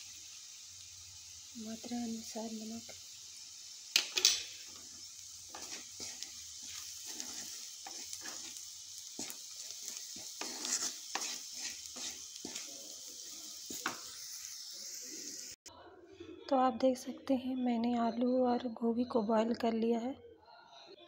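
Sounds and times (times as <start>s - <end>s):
oil sizzling: 0.0s - 15.6s
wooden spatula scraping pan: 4.7s - 14.1s.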